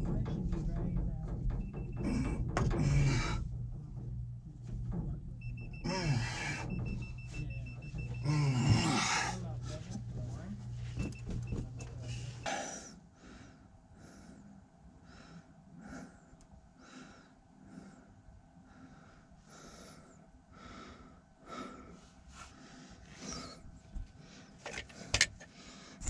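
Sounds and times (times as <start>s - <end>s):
person breathing hard: 2.0s - 3.5s, 5.9s - 7.0s, 8.2s - 9.8s, 12.0s - 26.0s.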